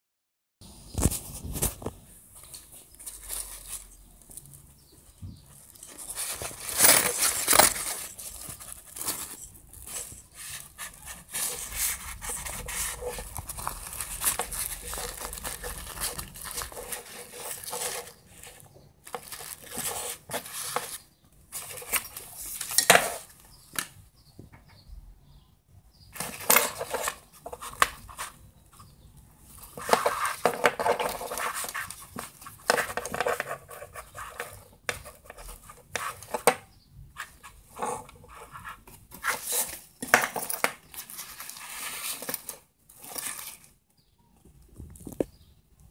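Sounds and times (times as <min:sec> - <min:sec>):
nylon bag rustling: 0:05.6 - 0:23.4.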